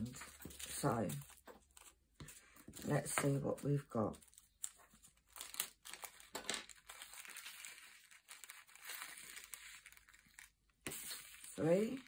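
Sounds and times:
plastic bag crinkling: 4.1 - 12.0.

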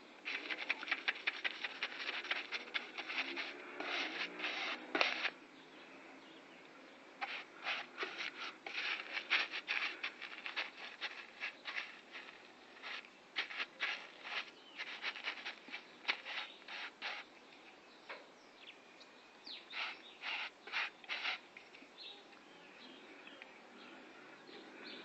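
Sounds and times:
scraping on metal panel: 0.3 - 5.4, 7.2 - 17.2.

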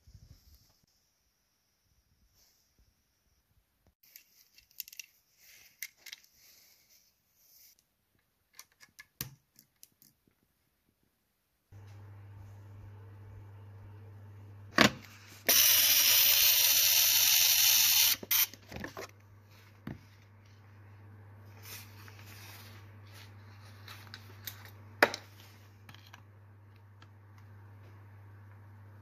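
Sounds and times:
ignition coil buzzing: 15.4 - 18.6.

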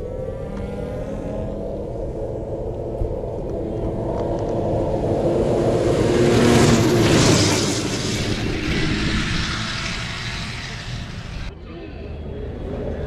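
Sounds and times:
snowmobile engine speeding past: 0.0 - 2.5, 3.7 - 11.5.

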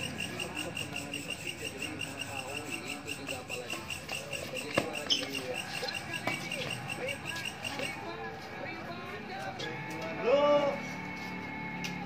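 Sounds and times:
cricket chirping: 0.0 - 8.1
faint voices: 0.0 - 12.0.

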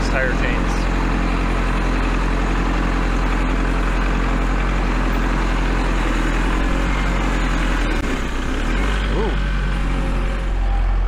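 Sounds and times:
tractor diesel engine running: 0.0 - 11.0.

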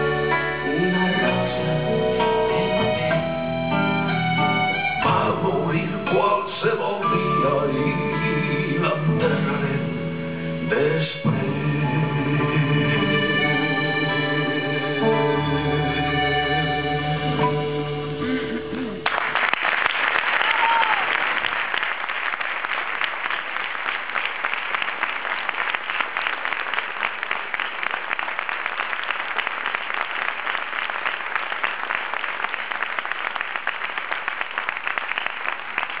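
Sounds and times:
audience applauding: 19.0 - 36.0.

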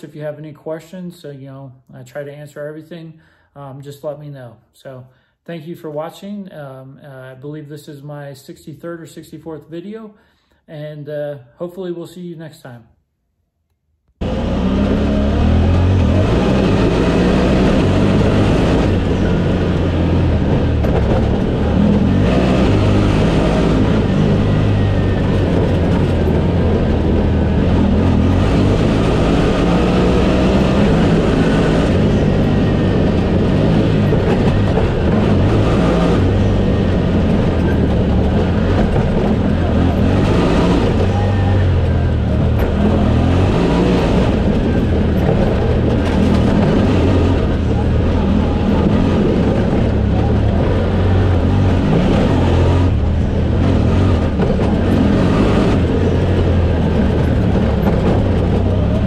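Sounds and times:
off-road vehicle engine under load: 14.2 - 59.0
road noise: 14.2 - 59.0.

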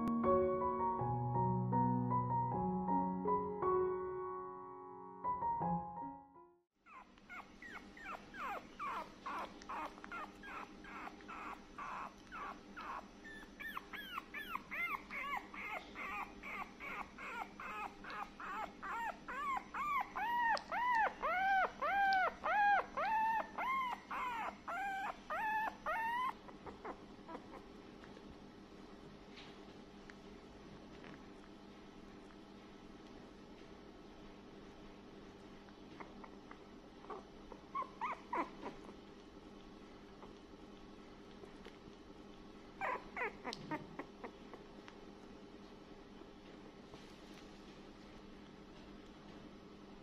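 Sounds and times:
puppy whining: 6.8 - 27.8, 35.9 - 39.3, 42.3 - 44.8.

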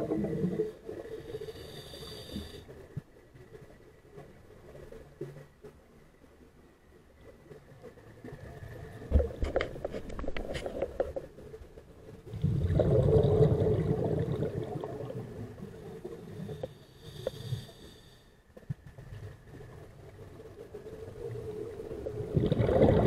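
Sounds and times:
underwater exhaled bubbles: 0.0 - 2.6, 12.3 - 17.8, 19.1 - 23.0.

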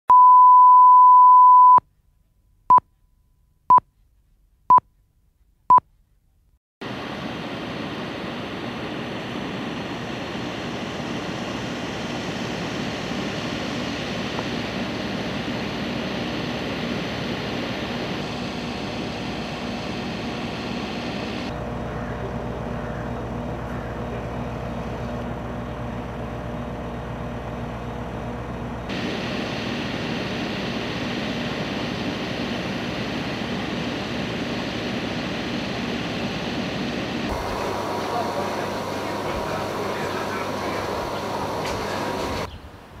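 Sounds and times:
short beeps: 0.1 - 1.8
outdoor background noise: 1.8 - 43.0
steady line-up tone: 6.8 - 26.8, 28.2 - 42.5
faint hum: 6.8 - 43.0.

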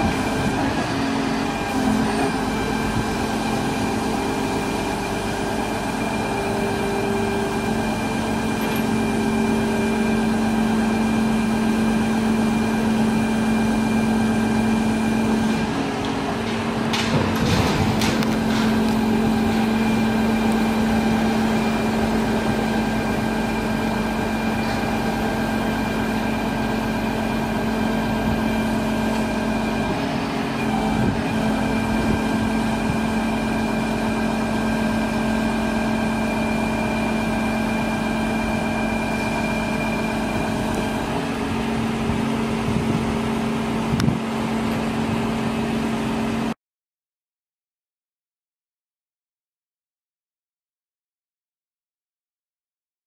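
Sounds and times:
excavator engine and hydraulics hum: 0.0 - 46.6
clunks: 15.6 - 23.1.

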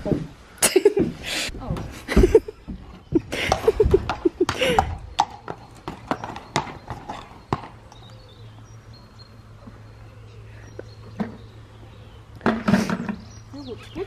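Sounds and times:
horse hooves clopping on brick: 1.0 - 8.1.

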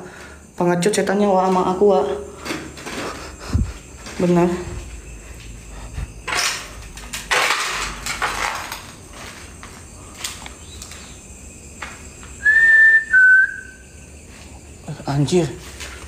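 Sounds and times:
whistle-like notes: 12.4 - 13.8.

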